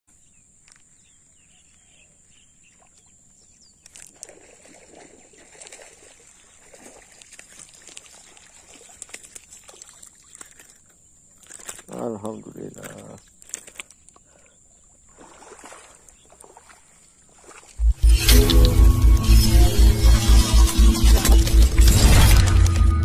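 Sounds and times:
fish splashing in water: 3.9 - 10.9, 15.1 - 17.8.

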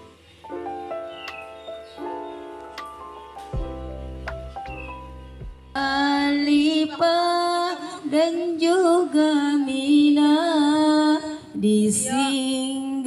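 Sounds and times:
background music: 0.0 - 12.8
woman singing devotional song: 5.8 - 13.0.

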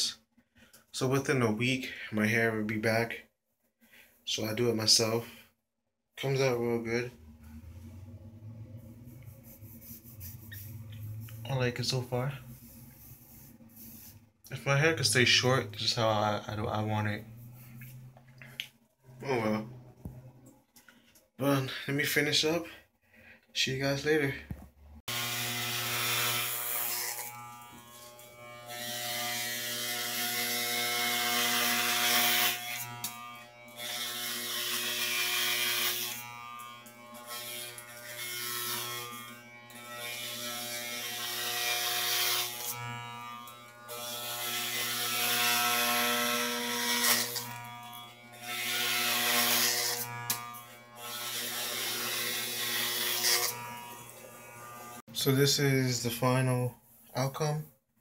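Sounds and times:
electric hair clippers buzzing: 25.1 - 55.1.

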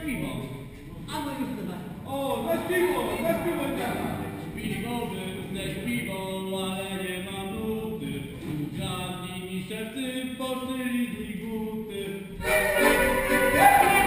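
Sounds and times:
person singing unaccompanied: 12.2 - 14.0
instrumental folk dance music: 12.3 - 14.0.

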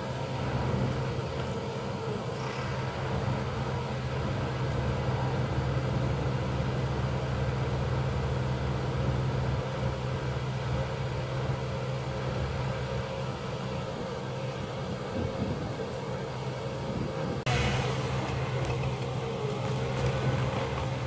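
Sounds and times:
crane engine humming: 0.0 - 21.0.

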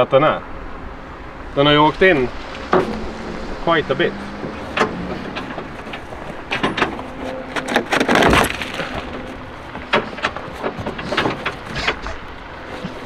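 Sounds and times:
metal panel scraping rattling crash: 2.0 - 12.3
car panel cracking and clicking: 4.3 - 13.0.

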